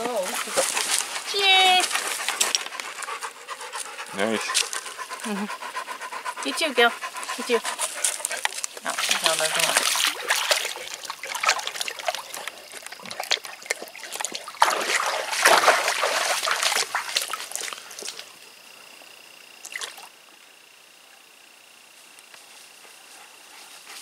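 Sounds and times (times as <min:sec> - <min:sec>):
dogs splashing in water: 0:00.0 - 0:02.7, 0:06.4 - 0:18.3.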